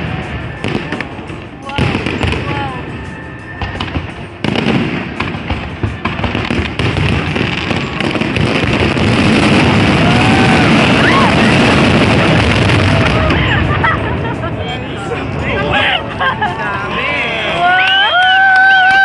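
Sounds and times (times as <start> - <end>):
fireworks bursting and crackling: 0.0 - 16.3.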